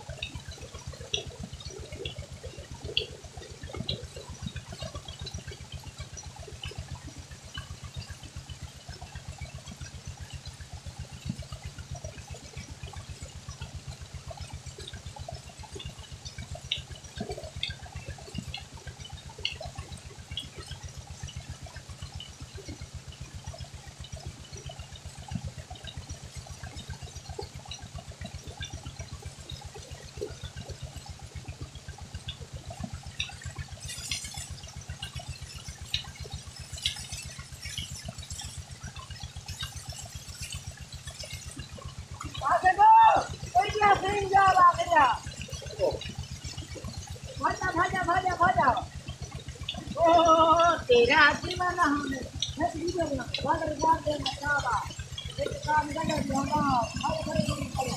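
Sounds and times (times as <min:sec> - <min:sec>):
pump engine beating: 0:00.0 - 0:57.9
water gushing and splashing: 0:23.2 - 0:57.9.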